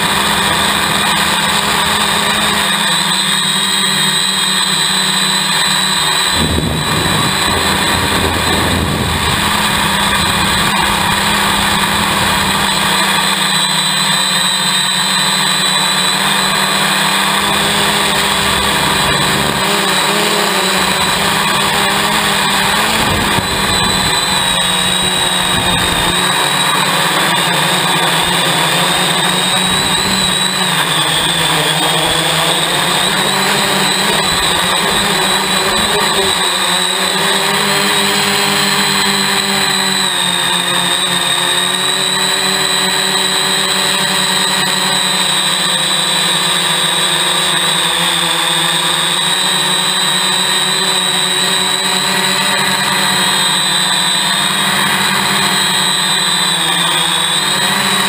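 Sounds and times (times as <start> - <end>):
drone motors whining: 0.0 - 58.0
wind rumble on microphone: 6.2 - 12.6, 22.8 - 26.2.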